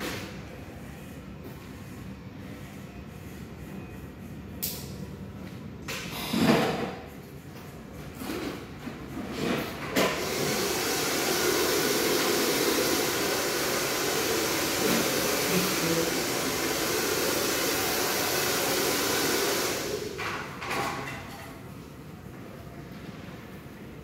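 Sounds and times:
blow dryer running: 10.0 - 20.2.

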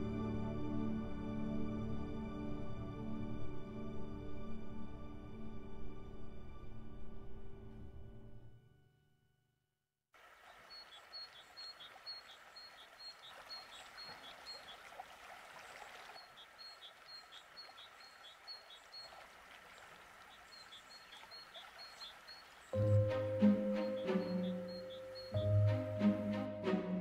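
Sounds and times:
river water flowing: 10.2 - 27.0
small bird calling: 10.3 - 25.6.

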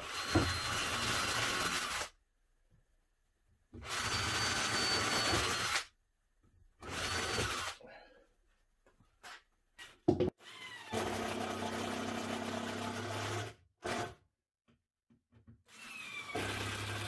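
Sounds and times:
cordless drill boring into wood: 0.0 - 2.1, 3.8 - 5.9, 6.8 - 7.8, 15.7 - 17.0.

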